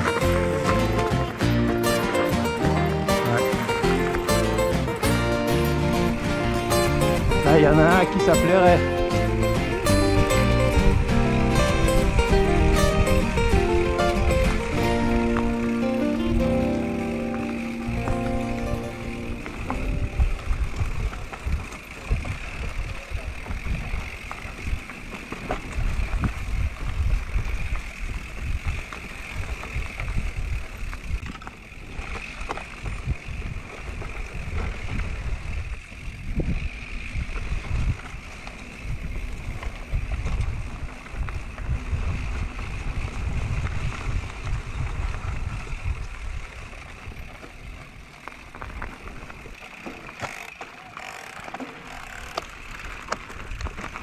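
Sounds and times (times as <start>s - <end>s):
electric bike rumbling: 0.0s - 54.0s
wind buffeting microphone: 5.8s - 17.0s, 17.8s - 49.6s
bike knocks and rattles: 17.9s - 36.4s.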